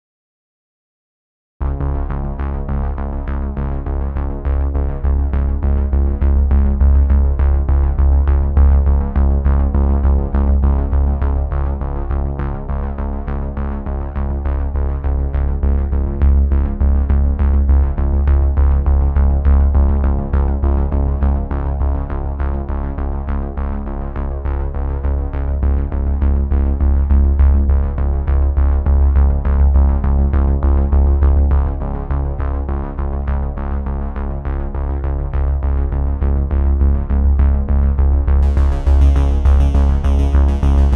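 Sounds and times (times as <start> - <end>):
bass: 1.6 - 40.9
drum machine beat: 38.4 - 40.9
synthesizer chords: 38.4 - 40.9.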